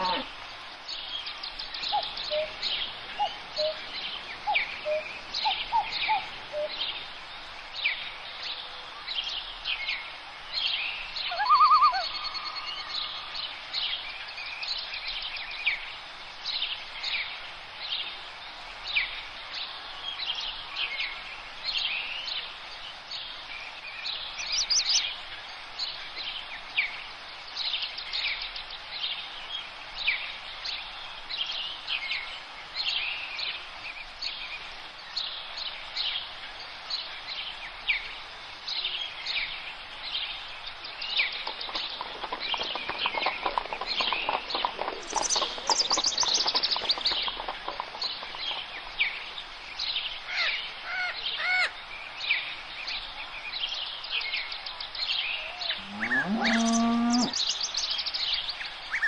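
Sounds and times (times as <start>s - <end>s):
birds chirping and singing: 1.0s - 7.1s, 10.7s - 14.0s, 40.5s - 59.0s.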